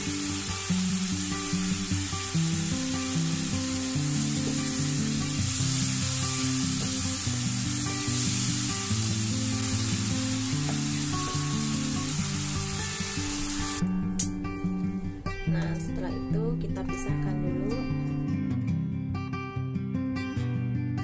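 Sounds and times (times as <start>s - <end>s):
sauce sizzling in a wok: 0.0s - 13.8s
background music with low notes: 0.0s - 21.0s.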